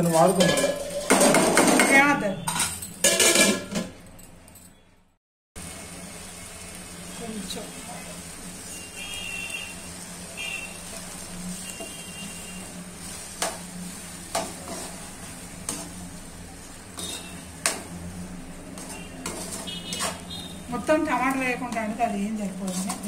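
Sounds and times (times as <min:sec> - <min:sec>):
curry sizzling: 0:05.6 - 0:23.0.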